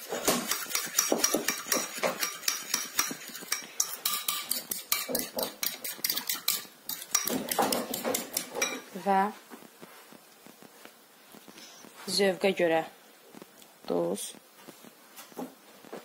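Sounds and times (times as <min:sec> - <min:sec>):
spoon clinking against ceramic bowl: 0:00.5 - 0:08.8.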